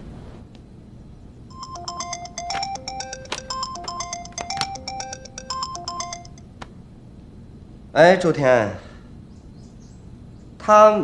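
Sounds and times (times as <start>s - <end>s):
mobile phone ringtone: 1.5s - 6.4s.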